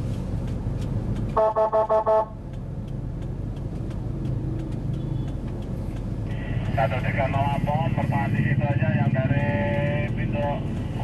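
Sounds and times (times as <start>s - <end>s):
car engine rumble: 0.0s - 11.0s
road noise inside car: 0.0s - 11.0s
car horn toots: 1.3s - 2.4s.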